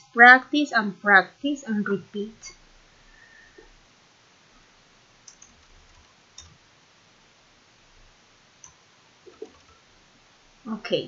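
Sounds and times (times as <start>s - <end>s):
keyboard and mouse clicks: 5.2s - 6.6s, 8.6s - 9.8s.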